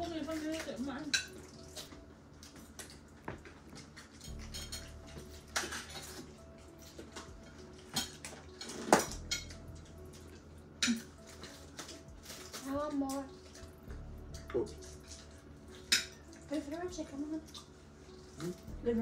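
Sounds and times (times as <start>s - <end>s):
cutlery and dishes clinking: 0.0s - 13.6s, 14.4s - 16.4s.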